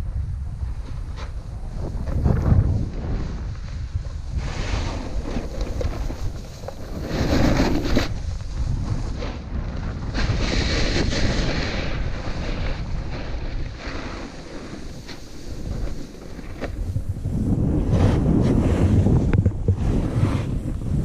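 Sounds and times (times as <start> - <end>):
wind buffeting microphone: 0.0 - 21.0
snowboard hissing through snow: 1.7 - 21.0.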